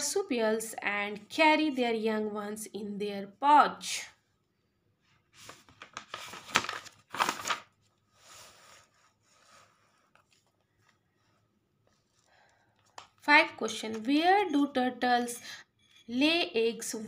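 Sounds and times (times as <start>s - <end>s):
paper pages rustling: 5.2s - 13.2s.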